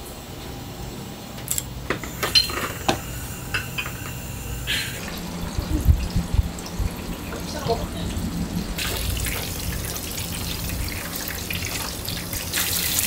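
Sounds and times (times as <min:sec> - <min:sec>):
dull low thumps: 0:05.2 - 0:08.8.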